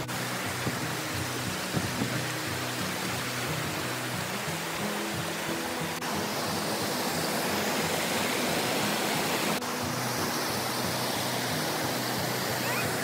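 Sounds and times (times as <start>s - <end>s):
rocky stream rushing: 0.0s - 13.0s
water running in stone canal: 0.0s - 13.0s.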